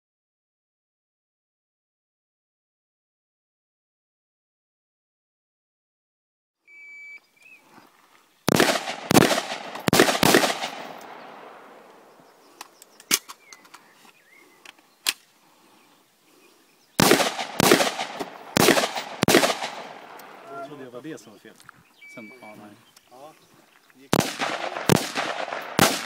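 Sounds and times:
rifle shots with echo: 0:08.5 - 0:12.3, 0:17.0 - 0:20.6, 0:24.1 - 0:26.0
thin single gun cracks: 0:12.6 - 0:13.8.

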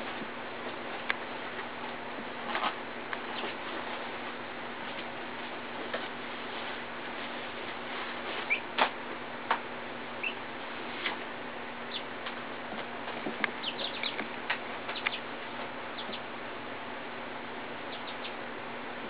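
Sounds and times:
young chickens peeping: 0:03.2 - 0:03.6, 0:08.4 - 0:08.8, 0:10.1 - 0:10.5, 0:11.8 - 0:12.3, 0:13.4 - 0:16.4, 0:17.8 - 0:18.5.

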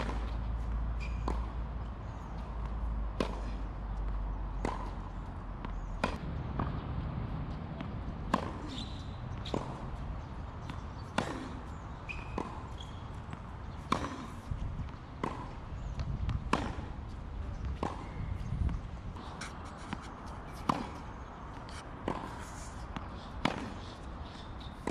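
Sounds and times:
racket striking tennis ball: 0:00.0 - 0:00.4, 0:02.5 - 0:03.6, 0:04.5 - 0:06.8, 0:07.8 - 0:09.9, 0:10.6 - 0:17.0, 0:17.6 - 0:18.2, 0:19.2 - 0:24.0
ball bouncing on hard court: 0:01.0 - 0:01.6, 0:12.1 - 0:14.3, 0:14.9 - 0:16.9, 0:20.6 - 0:21.0.

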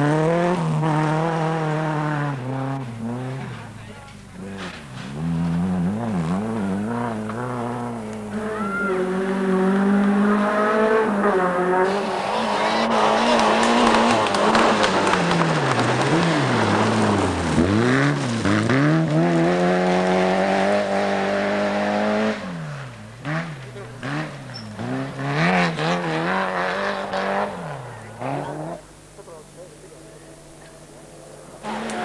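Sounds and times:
rally car engines at full throttle: 0:00.0 - 0:32.0
tyres sliding on gravel: 0:11.9 - 0:20.6.

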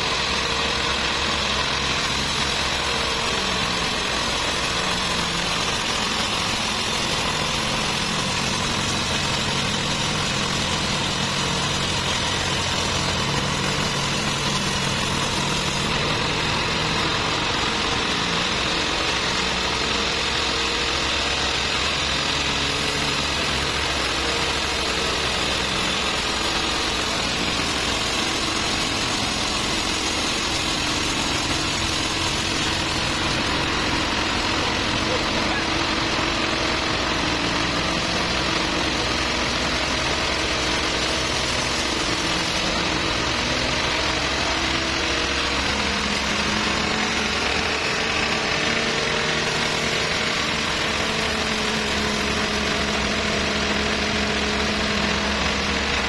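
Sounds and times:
band sawmill drone: 0:00.0 - 0:56.0.

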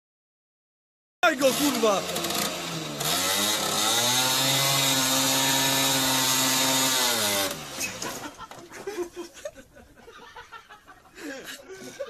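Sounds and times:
moped engine revving hard: 0:01.3 - 0:08.4.

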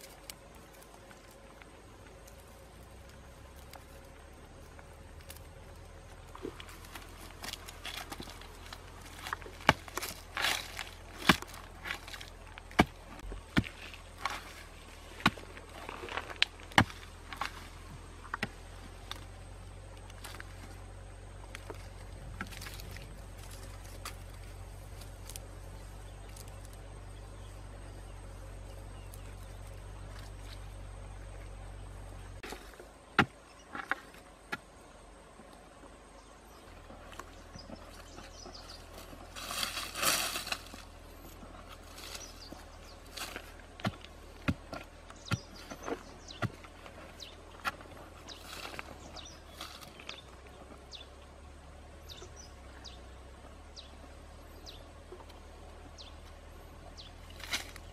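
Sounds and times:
hand digging in dry soil: 0:00.0 - 0:19.4, 0:36.8 - 0:50.6
scraping and crumbling earth: 0:00.0 - 0:57.9.

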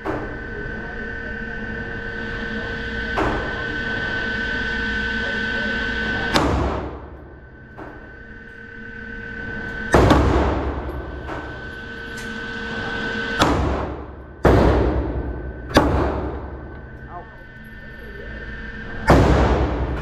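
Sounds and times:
pistol shots echoing indoors: 0:06.1 - 0:17.7, 0:18.4 - 0:20.0.

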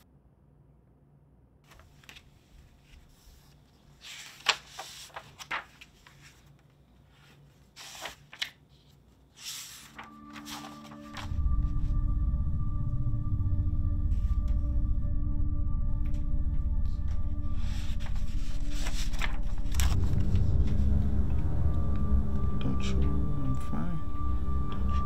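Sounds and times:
paper pages flipping: 0:01.7 - 0:11.4, 0:17.6 - 0:21.0
low droning music: 0:09.6 - 0:25.0.

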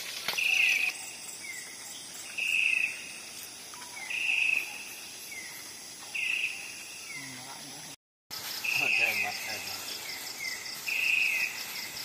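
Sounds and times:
insect falling chirp: 0:00.0 - 0:01.8
insect buzzy trills: 0:00.0 - 0:12.0.

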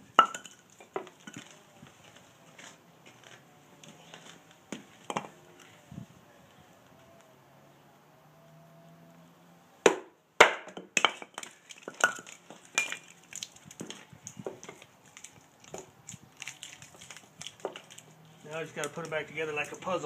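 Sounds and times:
log splitting: 0:09.8 - 0:20.0
baton knocking knife through log: 0:09.9 - 0:12.2.

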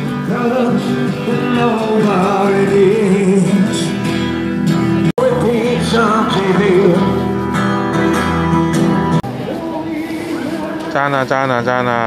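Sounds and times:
acoustic guitar: 0:00.0 - 0:12.0
person singing: 0:05.2 - 0:07.4.

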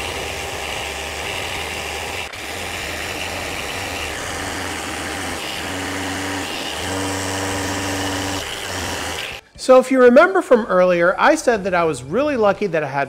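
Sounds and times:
orbital sander on wood: 0:00.0 - 0:09.4.

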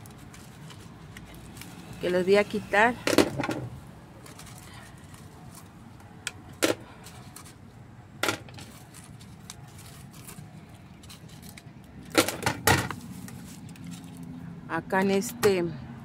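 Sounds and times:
plastic flowerpots clicking and knocking: 0:11.0 - 0:13.9.

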